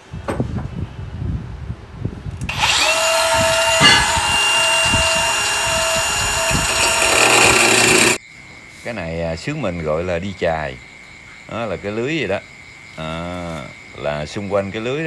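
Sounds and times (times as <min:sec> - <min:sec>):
angle grinder whining: 0:02.5 - 0:08.2
tools clattering: 0:03.8 - 0:04.3.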